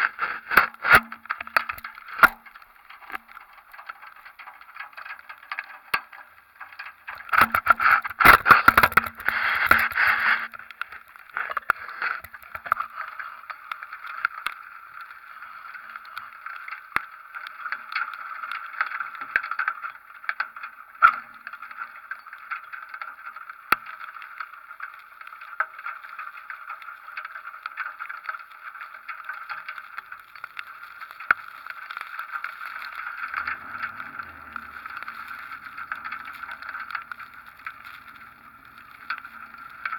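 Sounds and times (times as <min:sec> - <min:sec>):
camera buffeting and clattering: 0:07.1 - 0:12.9
wind and rain rushing: 0:30.8 - 0:39.9.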